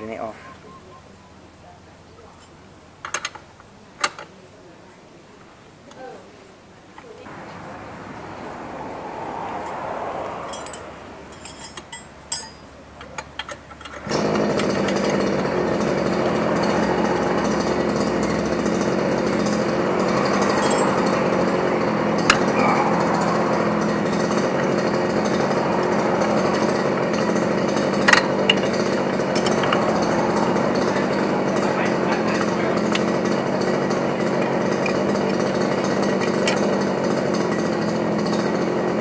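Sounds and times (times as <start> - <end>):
motor humming: 7.3 - 12.0, 13.9 - 39.0
hand tools tapping metal: 10.5 - 37.6.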